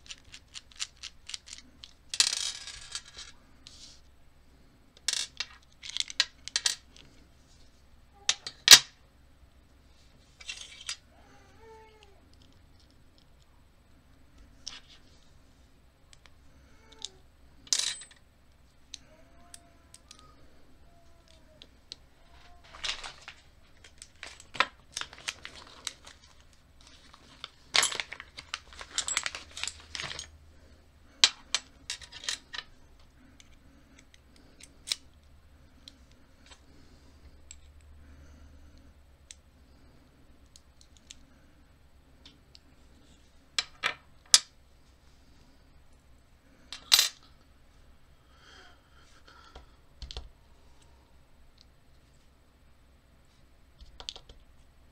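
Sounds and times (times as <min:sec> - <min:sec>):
padlock parts clicking and clinking: 0:00.0 - 0:02.1, 0:05.0 - 0:07.0, 0:22.6 - 0:30.4, 0:31.2 - 0:32.7.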